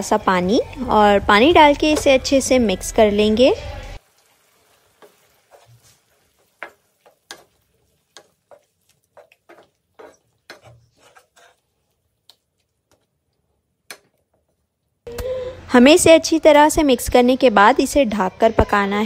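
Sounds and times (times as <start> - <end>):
wooden spatula tapping a pan: 5.0 - 10.8.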